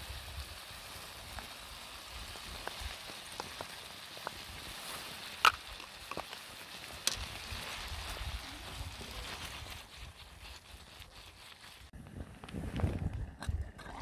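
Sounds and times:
sauce sizzling in a pan: 0.0 - 7.7
fire crackling: 0.0 - 14.0.

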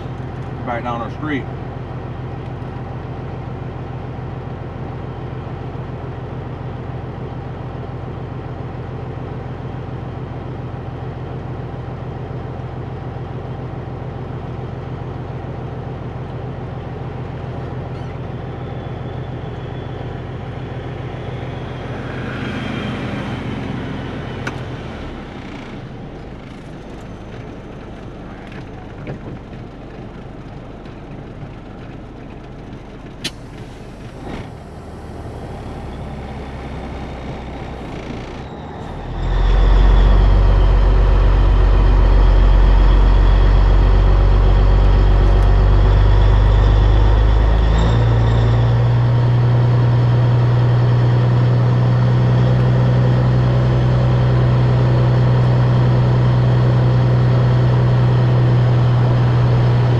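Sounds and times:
diesel truck engine idling: 0.0 - 59.9.

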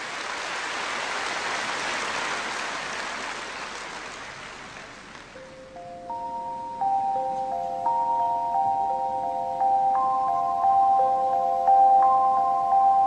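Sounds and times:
rushing noise like rain: 0.0 - 5.4
chiming glockenspiel-like music: 5.4 - 13.0.

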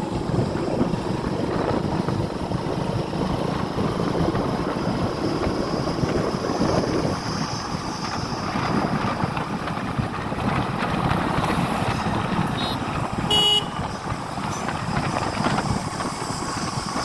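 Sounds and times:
motorcycle engine: 0.0 - 17.0
wind noise: 0.0 - 17.0
vehicle horn toot: 12.6 - 14.0.

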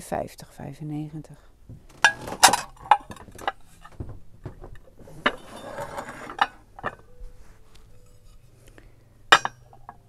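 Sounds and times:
footsteps on wooden floor: 1.6 - 2.0, 3.1 - 5.2
stoneware dishes clinking: 4.7 - 7.2, 9.3 - 10.0.

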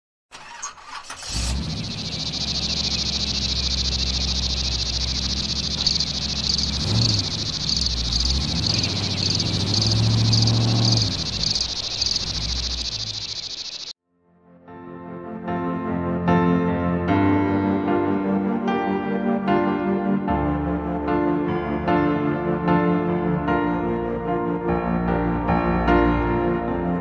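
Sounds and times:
pulsing high chirring: 1.0 - 13.9.

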